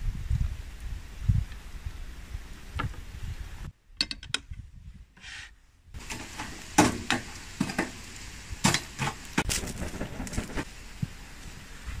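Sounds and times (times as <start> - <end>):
charcoal clattering in metal grill: 6.0 - 10.7.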